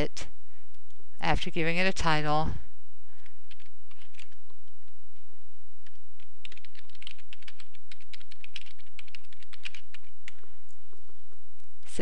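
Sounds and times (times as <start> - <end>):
typing on keyboard: 3.5 - 4.4, 5.8 - 10.4.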